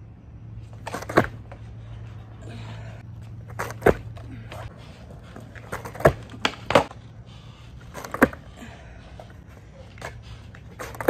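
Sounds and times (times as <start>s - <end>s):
skateboard knocking: 5.3s - 7.0s.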